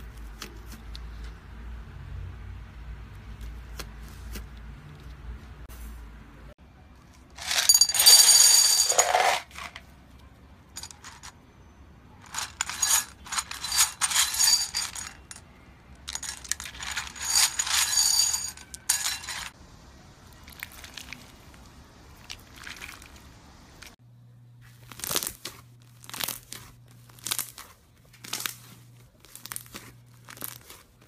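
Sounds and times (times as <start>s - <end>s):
plastic gems clinking in glass bowl: 7.4s - 9.8s, 10.8s - 11.3s, 12.2s - 15.4s, 16.0s - 19.6s.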